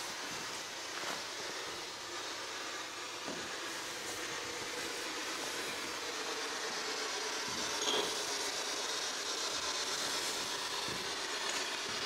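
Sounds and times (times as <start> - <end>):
short tone: 7.8 - 8.2.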